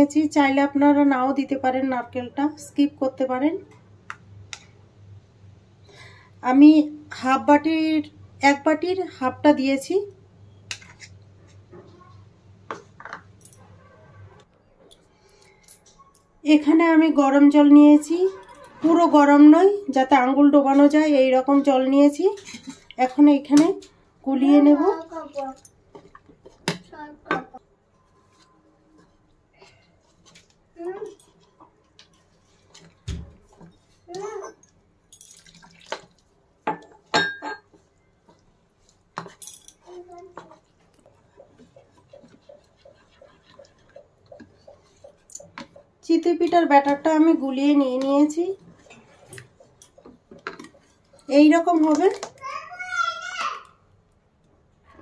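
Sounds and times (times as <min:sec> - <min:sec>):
hand kneading wet batter: 0:39.9 - 0:52.4.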